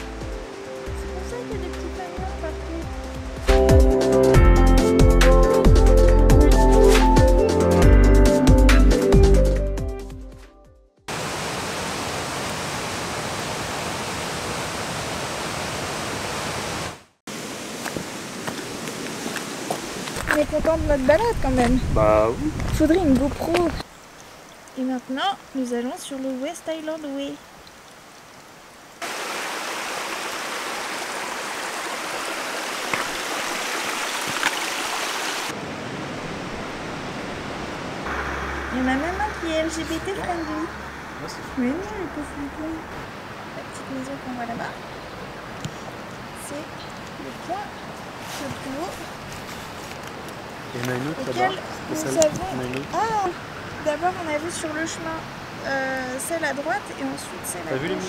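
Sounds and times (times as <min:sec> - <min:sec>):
flowing water rushing: 0:00.0 - 0:03.5, 0:11.1 - 0:22.3, 0:22.9 - 0:58.0
electronic music: 0:03.4 - 0:10.3
stream running over stones: 0:11.1 - 0:58.0
footsteps on wet rocks: 0:17.6 - 0:23.9, 0:32.7 - 0:35.3, 0:48.0 - 0:51.2.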